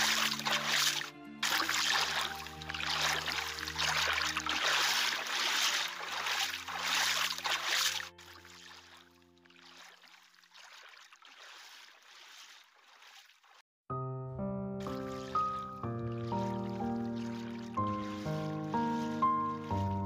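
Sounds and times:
soft sustained music chords: 0.0 - 9.6
water sloshing from wading: 0.0 - 13.6, 14.9 - 20.0.

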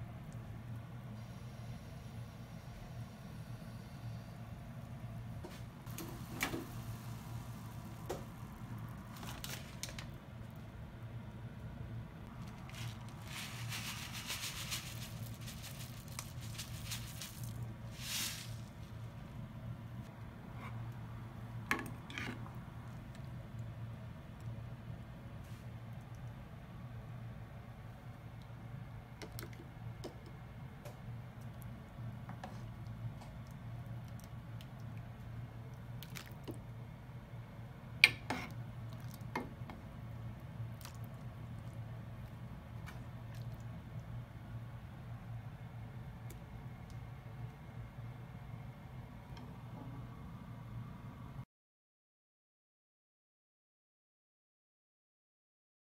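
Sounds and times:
plastic bag crinkling: 9.0 - 10.1, 12.3 - 18.8
liquid sloshing and dripping: 35.8 - 36.6.

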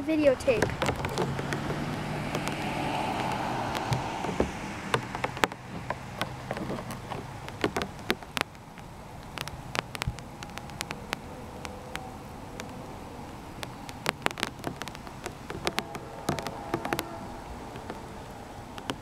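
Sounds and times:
rain ticks: 0.0 - 19.0
distant diesel locomotive droning: 15.6 - 18.6.

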